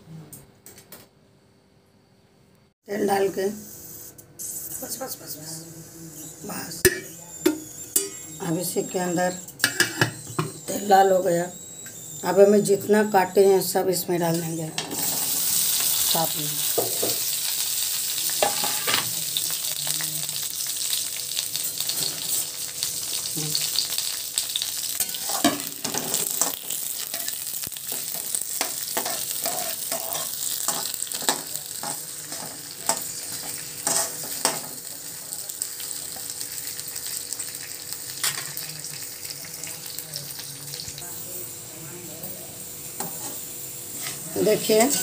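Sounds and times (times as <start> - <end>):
vegetables sizzling in hot oil: 6.3 - 45.0
metal spatula scraping a pan: 18.4 - 19.1, 25.0 - 34.8, 43.0 - 45.0.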